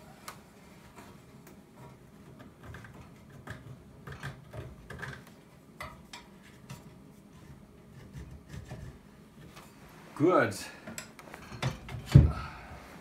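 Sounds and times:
faint clicks and light knocks: 0.2 - 6.9.

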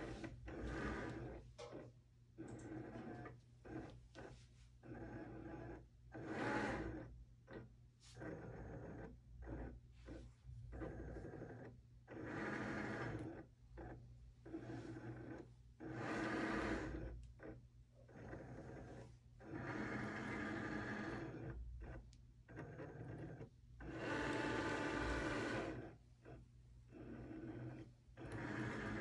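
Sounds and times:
cutting machine motors whirring: 10.7 - 17.1, 18.2 - 21.5, 22.6 - 26.0, 26.9 - 29.0.

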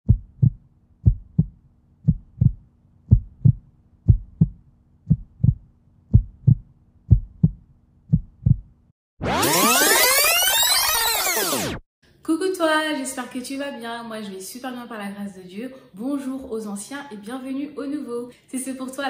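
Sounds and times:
heartbeat thumps: 0.0 - 8.8.

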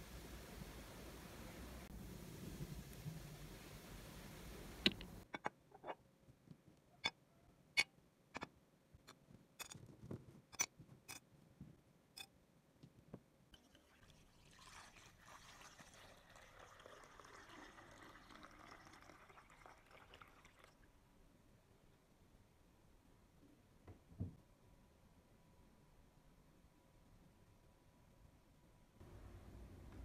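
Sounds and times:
liquid pouring into basin: 13.6 - 20.9.

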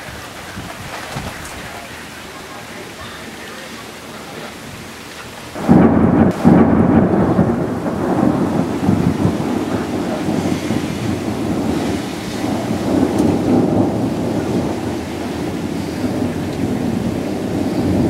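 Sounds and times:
rain falling: 0.0 - 18.0
thunder crack and rumble: 5.6 - 18.0.

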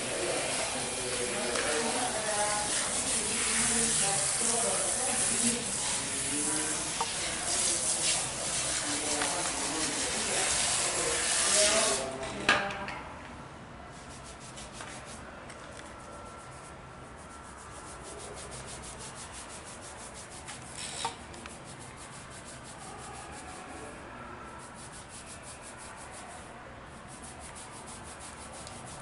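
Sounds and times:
fingers scrubbing wet hair: 0.0 - 12.0, 17.4 - 20.5, 21.4 - 23.6, 24.6 - 26.4, 27.1 - 29.0.

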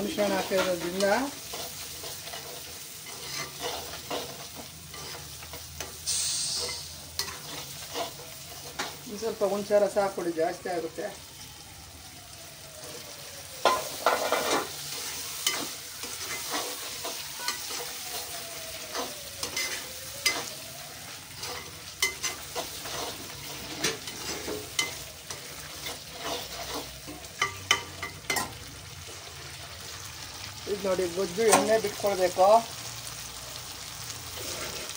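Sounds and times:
gravy sizzling: 0.0 - 34.9
ladle scraping a pan: 0.2 - 9.0, 21.4 - 28.4, 34.4 - 34.9.

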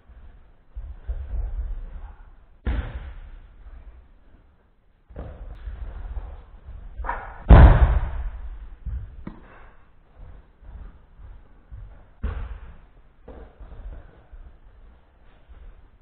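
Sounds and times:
body slapping onto mats: 2.6 - 3.5, 7.0 - 9.7, 11.8 - 14.2
feet scuffing on mats: 7.8 - 16.0.

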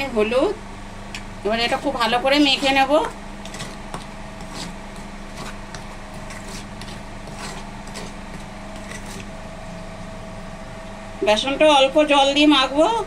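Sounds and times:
steady mechanical hum: 0.0 - 13.0
spoon stirring flour in steel bowl: 1.5 - 10.2.

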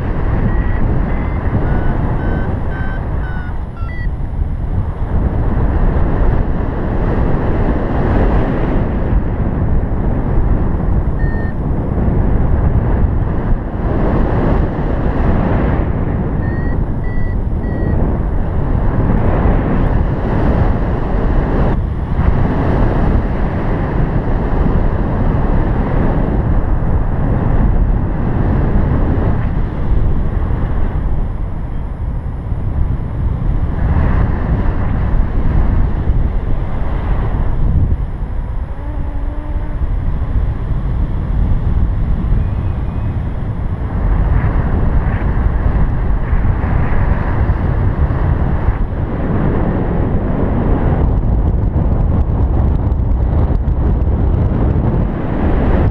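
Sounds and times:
wind rushing over microphone: 0.0 - 55.9
variometer beeps: 0.2 - 4.3, 11.1 - 11.6, 16.3 - 18.1.

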